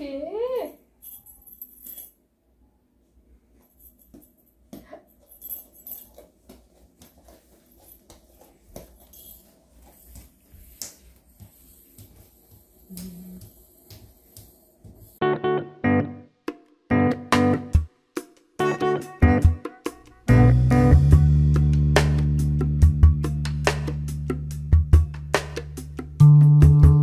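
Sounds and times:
baby hands patting floor: 4.1s - 15.2s.

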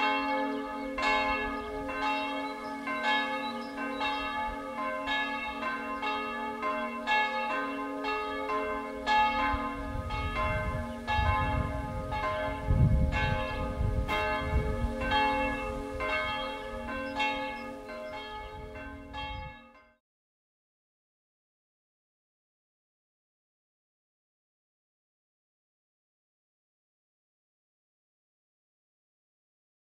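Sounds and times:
church bells ringing: 0.0s - 20.0s.

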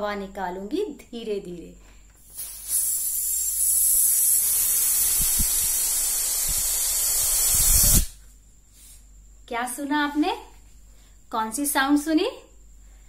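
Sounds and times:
air hissing out of balloon: 2.2s - 9.1s.

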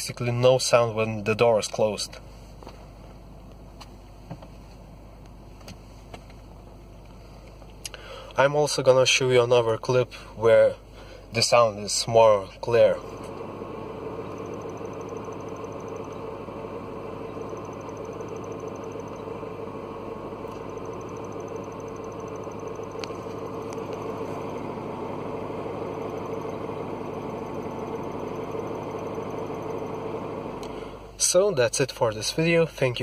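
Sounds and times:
car engine idling: 1.7s - 8.4s, 11.9s - 31.5s.

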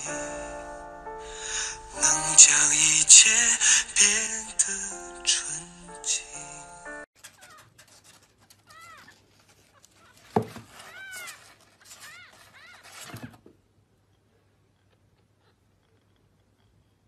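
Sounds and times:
kittens mewing: 8.6s - 13.2s.

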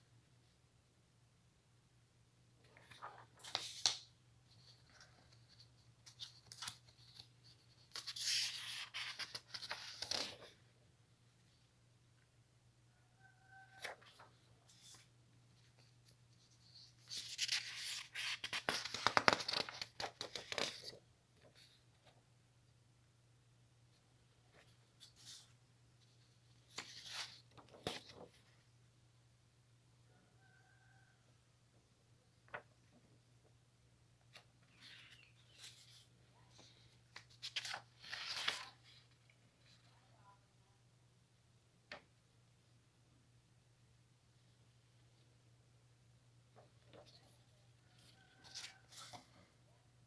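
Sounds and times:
paper rustling and crackling: 2.8s - 10.6s, 16.7s - 21.0s, 34.3s - 39.2s.

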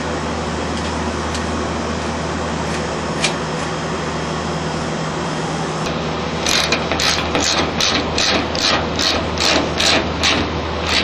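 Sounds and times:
low machinery hum: 0.0s - 11.0s
screw scraping into sheet metal: 6.4s - 11.0s.

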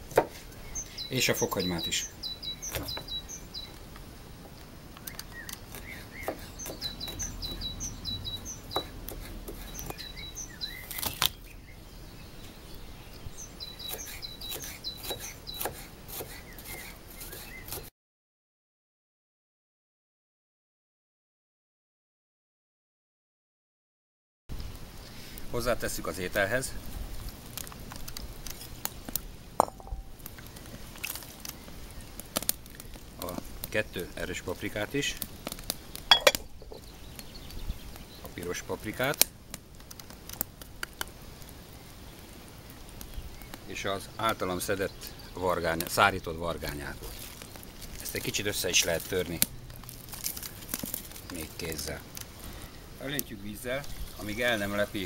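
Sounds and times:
small birds chirping: 0.1s - 17.9s, 27.5s - 39.2s, 39.8s - 55.0s
knife chopping on wooden board: 6.2s - 6.9s, 8.8s - 9.6s, 13.9s - 17.9s
ceramic clinking on ceramic: 36.1s - 36.5s.

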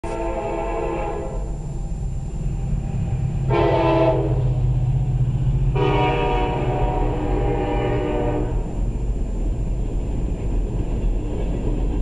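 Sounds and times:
locomotive air horn blasts: 0.0s - 1.6s, 3.4s - 4.6s, 5.7s - 8.8s
diesel locomotive rumble: 0.0s - 12.0s.

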